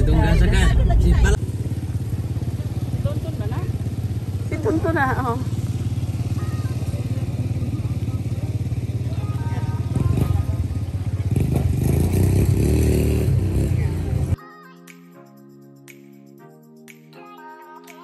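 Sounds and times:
quad bike engines running: 0:00.1 - 0:14.4.

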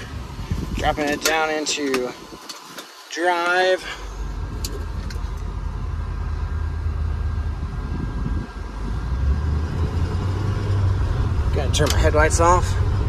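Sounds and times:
diesel truck engine hum: 0:03.8 - 0:13.0.

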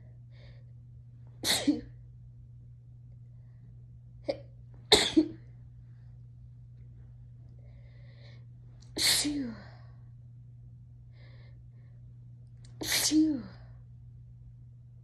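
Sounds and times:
steady low hum: 0:00.0 - 0:15.0
person sneezing: 0:01.4 - 0:02.0, 0:04.3 - 0:05.5, 0:09.0 - 0:09.8, 0:12.8 - 0:13.6.

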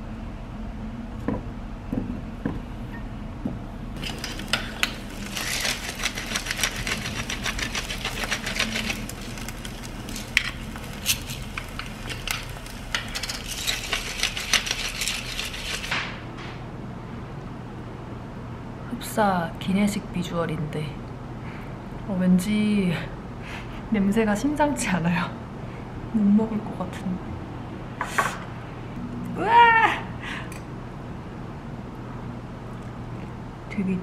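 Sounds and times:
food sizzling in a pan: 0:04.0 - 0:15.9.

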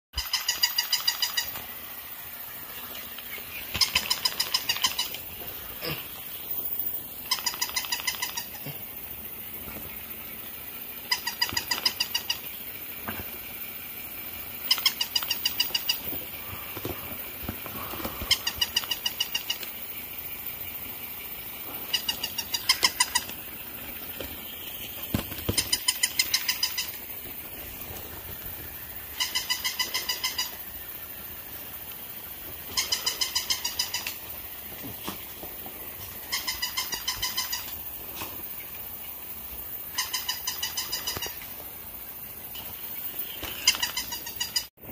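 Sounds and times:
toy high-pitched trilling call: 0:00.2 - 0:01.6, 0:03.2 - 0:09.5, 0:10.7 - 0:12.9, 0:14.2 - 0:17.0, 0:17.7 - 0:23.6, 0:24.2 - 0:28.2, 0:28.9 - 0:31.3, 0:32.2 - 0:34.5, 0:36.0 - 0:38.0, 0:39.3 - 0:41.5, 0:42.6 - 0:44.7.

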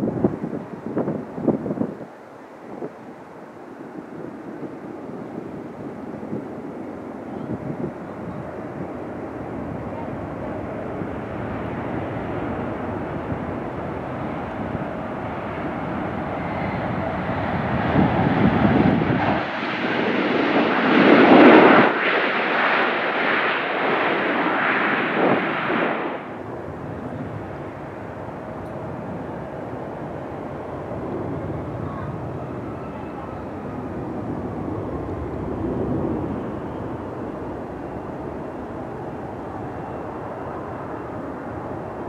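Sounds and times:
jet engine landing: 0:02.6 - 0:42.0
jet reverse thrust surge: 0:18.4 - 0:26.5.

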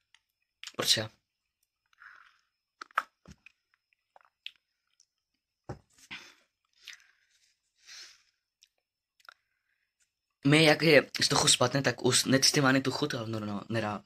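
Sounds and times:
gulps and lip smacks: 0:02.0 - 0:05.1
short breaths: 0:06.0 - 0:08.4.

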